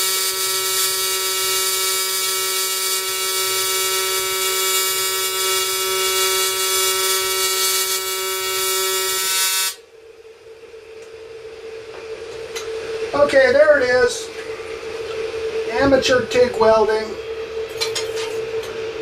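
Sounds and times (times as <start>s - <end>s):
welding arc buzzing: 0.0s - 9.8s
faint hum: 9.7s - 19.0s.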